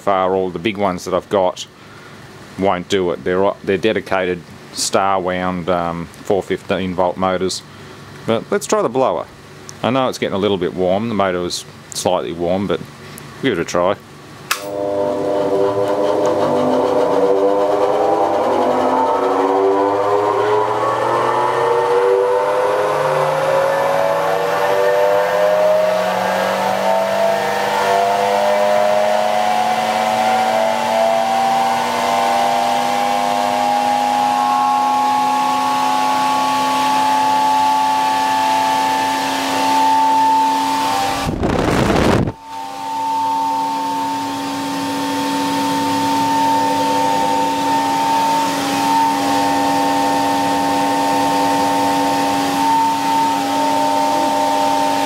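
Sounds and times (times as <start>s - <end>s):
electric motor humming and whining: 14.6s - 55.0s.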